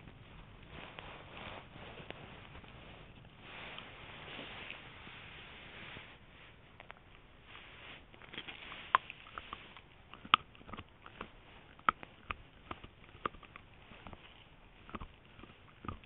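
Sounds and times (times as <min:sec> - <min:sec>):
dog chewing cartilage: 0:08.1 - 0:16.0.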